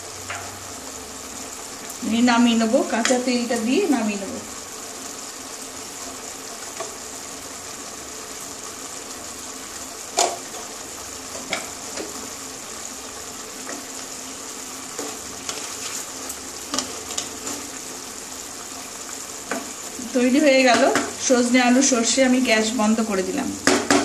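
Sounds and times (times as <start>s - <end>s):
curry bubbling and sizzling: 0.0s - 24.0s
wooden spatula stirring: 14.9s - 17.8s.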